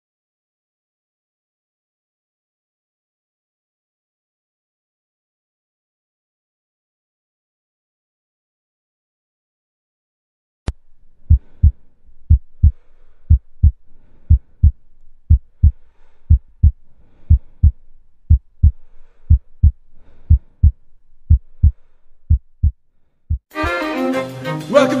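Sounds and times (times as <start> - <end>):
heartbeat thumps: 10.7 - 23.5.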